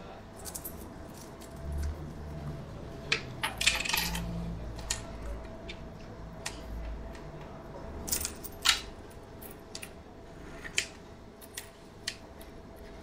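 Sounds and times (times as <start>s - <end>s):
coins clinking on wooden table: 3.4s - 4.3s.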